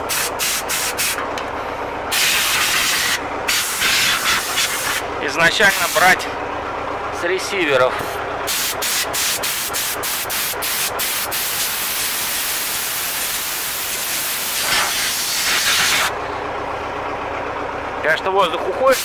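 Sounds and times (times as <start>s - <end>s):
compressed air blow gun hissing: 0.1s - 1.2s, 2.1s - 5.0s, 8.0s - 16.1s.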